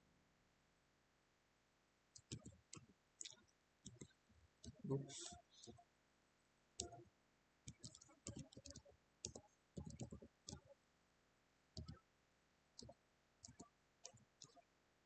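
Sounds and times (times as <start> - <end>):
keyboard typing clicks: 2.2 - 5.8, 6.8 - 7.0, 7.7 - 10.6, 11.8 - 12.0, 12.8 - 14.6.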